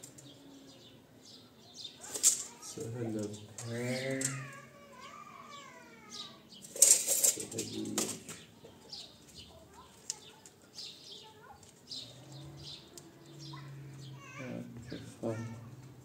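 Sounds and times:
tape measure whirring rattle: 0:02.0 - 0:02.6.

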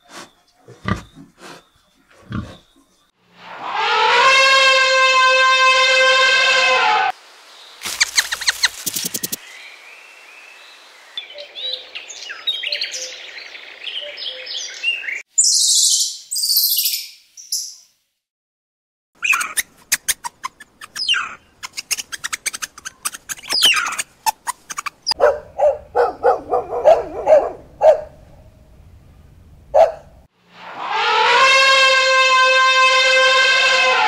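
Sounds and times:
elephant trumpeting: 0:03.6 - 0:07.1, 0:30.6 - 0:34.0
high animal chirps: 0:07.8 - 0:09.4, 0:19.2 - 0:25.2
meerkat calls: 0:19.2 - 0:25.2
quick clicks: 0:19.4 - 0:25.2.

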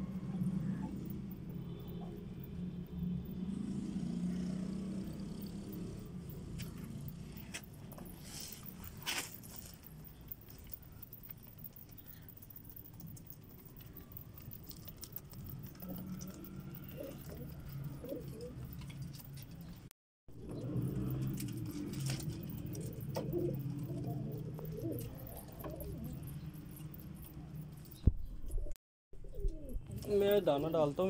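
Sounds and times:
pigeons cooing: 0:10.1 - 0:19.2, 0:20.4 - 0:30.2.

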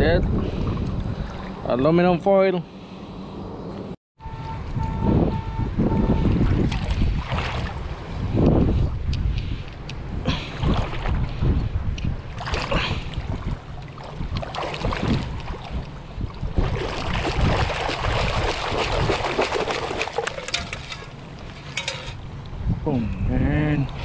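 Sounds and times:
water churning and sloshing: 0:00.2 - 0:02.0, 0:06.0 - 0:08.4, 0:10.1 - 0:22.7
gritty crackling of sand and shell: 0:19.7 - 0:23.0.

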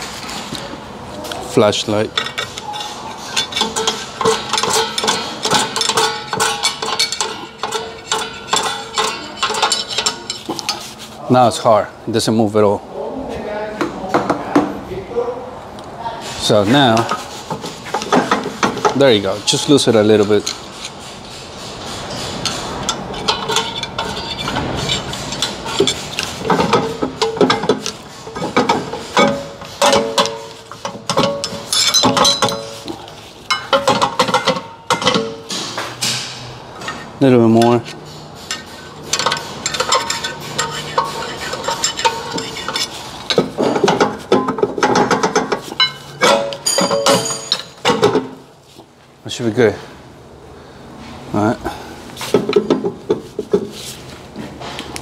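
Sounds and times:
screwdriver clicking and scraping metal: 0:22.1 - 0:32.9, 0:37.6 - 0:46.8
metallic scrapes with ringing tone: 0:37.9 - 0:43.4.

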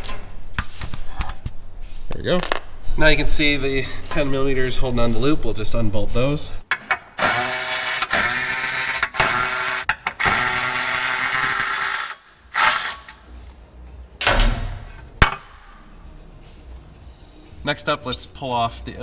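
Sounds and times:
cordless power tool whirring: 0:07.2 - 0:13.1.

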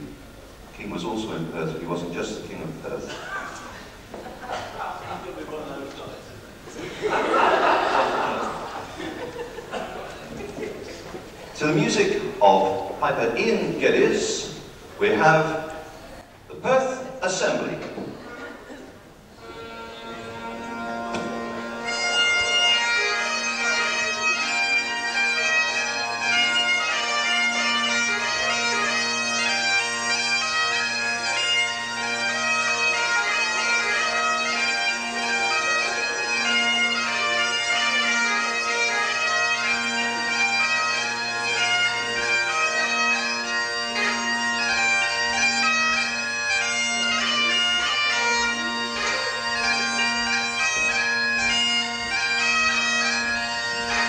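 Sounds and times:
bagpipes playing a tune: 0:19.2 - 0:54.0.

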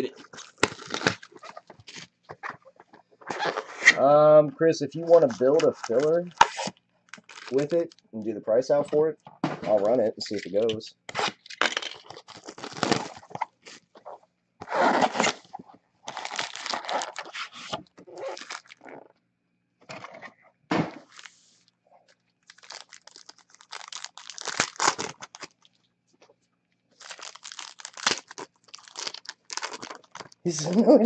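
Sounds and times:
plastic wrapping crinkling: 0:00.0 - 0:03.6, 0:05.1 - 0:08.0, 0:11.4 - 0:13.8, 0:16.1 - 0:18.9, 0:22.4 - 0:25.8, 0:27.0 - 0:31.0.

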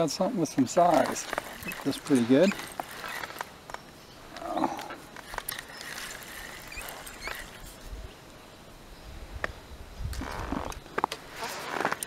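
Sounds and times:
fishing reel clicking: 0:00.8 - 0:03.4, 0:05.2 - 0:07.8.

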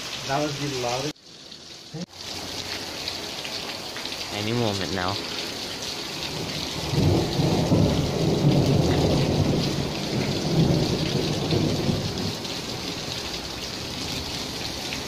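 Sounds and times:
heavy rain hissing: 0:00.0 - 0:15.0
thunder rumbling: 0:06.3 - 0:12.9.

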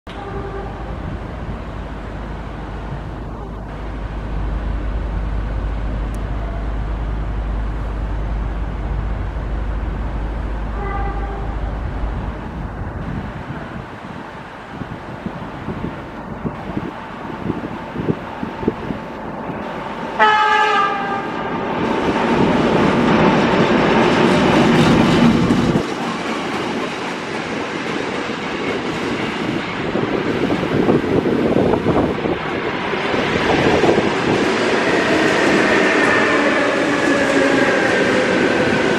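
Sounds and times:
locomotive horn blast: 0:00.1 - 0:01.0, 0:10.7 - 0:11.8, 0:20.2 - 0:21.5
diesel locomotive rumbling: 0:00.1 - 0:38.9.

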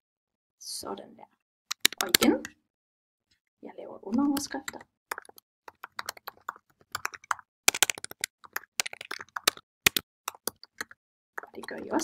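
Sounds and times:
typing on computer keyboard: 0:01.7 - 0:02.5, 0:04.2 - 0:12.0.

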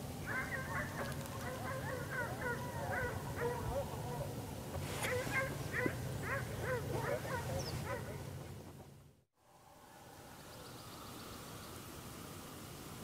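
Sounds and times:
faint steady hiss: 0:00.0 - 0:13.0
hounds baying and yelping: 0:00.2 - 0:08.8.

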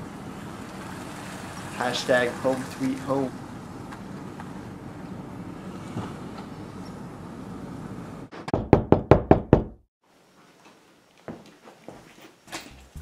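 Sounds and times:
loud knocks on door: 0:08.5 - 0:09.8.

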